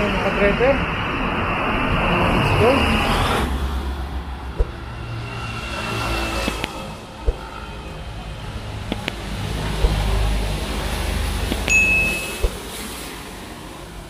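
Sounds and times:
road traffic: 0:00.0 - 0:14.0
sharp knocks: 0:04.6 - 0:04.8, 0:08.9 - 0:10.1
short high tone: 0:11.7 - 0:12.5.

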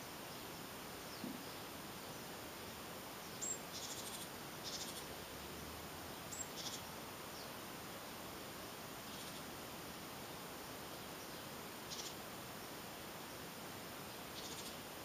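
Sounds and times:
faint outdoor hiss: 0:00.0 - 0:15.0
songbird calling: 0:01.0 - 0:01.8, 0:02.6 - 0:05.1, 0:06.1 - 0:07.6, 0:09.0 - 0:09.5, 0:10.3 - 0:12.2, 0:14.1 - 0:14.9.

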